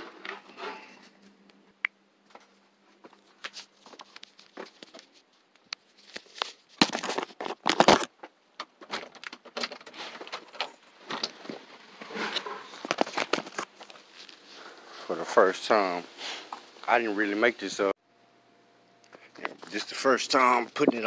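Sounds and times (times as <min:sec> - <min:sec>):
phone handling rustling: 0:12.2 - 0:14.4.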